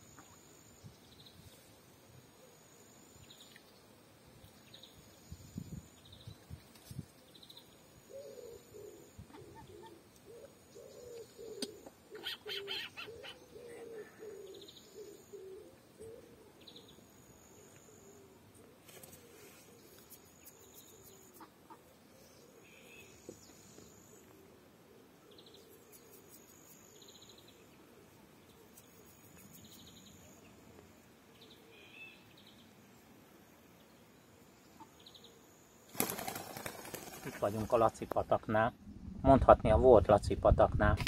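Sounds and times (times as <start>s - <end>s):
low wavering bird calls: 7.4s - 26.2s.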